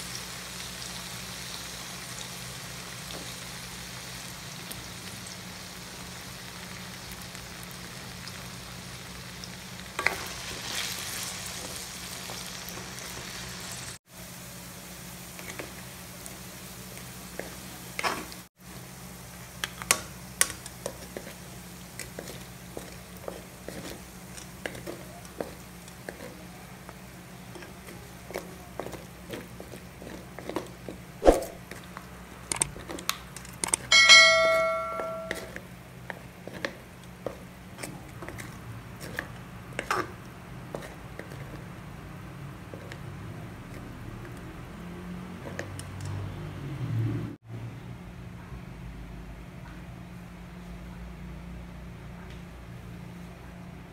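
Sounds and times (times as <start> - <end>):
oil frying: 0.0 - 46.8
utensils knocking against pan: 33.7 - 35.6
ringing metal strike: 33.9 - 35.5.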